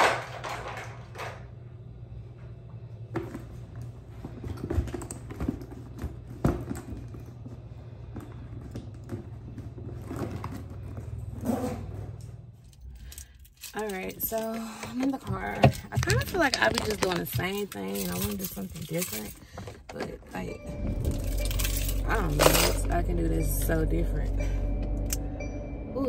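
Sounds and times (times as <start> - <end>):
steady low hum: 0.0 - 26.0
small objects clicking and knocking: 12.8 - 19.7.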